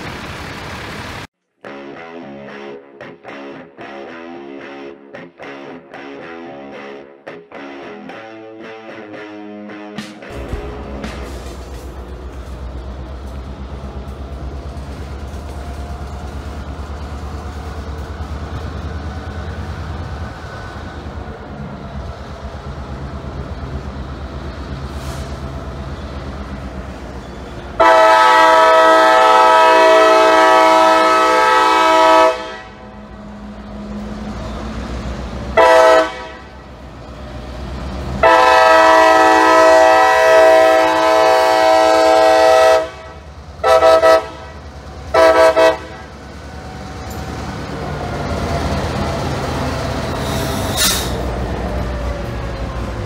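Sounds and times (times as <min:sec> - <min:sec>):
railcars rumbling: 0:00.0 - 0:01.3, 0:10.0 - 0:53.0
locomotive air horn: 0:27.8 - 0:33.0, 0:35.5 - 0:36.7, 0:38.2 - 0:46.2, 0:50.2 - 0:51.2.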